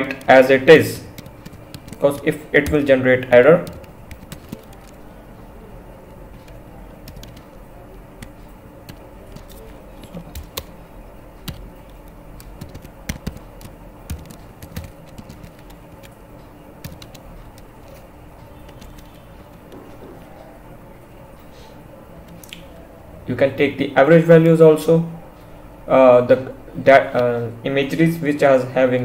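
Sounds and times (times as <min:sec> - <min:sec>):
keyboard typing: 0:00.0 - 0:05.2, 0:06.0 - 0:10.8, 0:11.4 - 0:20.5, 0:22.2 - 0:22.9
faint steady hum: 0:00.0 - 0:29.0.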